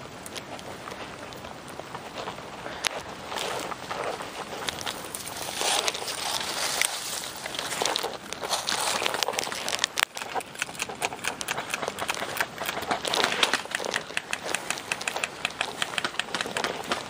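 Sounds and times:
stalks rustling: 0:00.1 - 0:17.0
footsteps through tall grass: 0:02.0 - 0:09.7.

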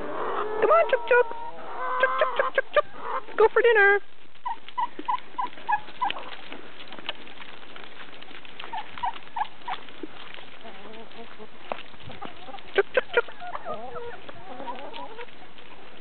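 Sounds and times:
hens clucking: 0:00.0 - 0:16.0
footsteps on grass and leaves: 0:04.0 - 0:16.0.

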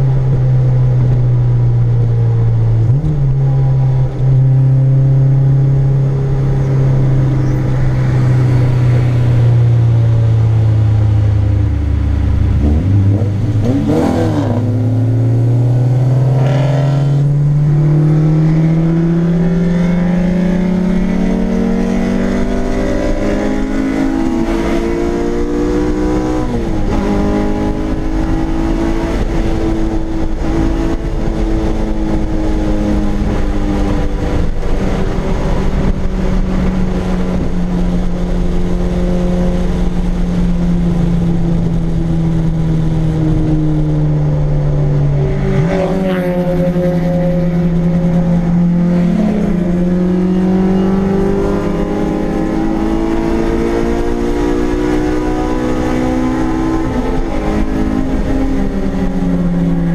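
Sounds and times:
car engine revving from inside: 0:12.0 - 0:40.5, 0:43.8 - 0:59.9.

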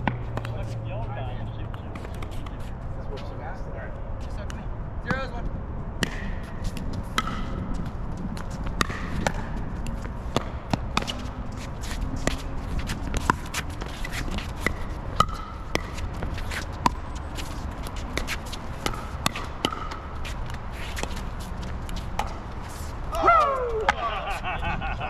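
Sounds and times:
wind rumble on microphone: 0:02.5 - 0:15.2, 0:20.5 - 0:25.0
shoe scuffs: 0:20.2 - 0:24.5.

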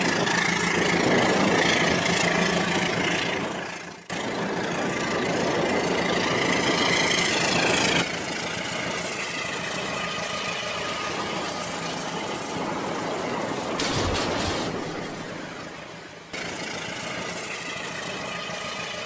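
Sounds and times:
toy trains running on plastic track: 0:16.3 - 0:19.0.

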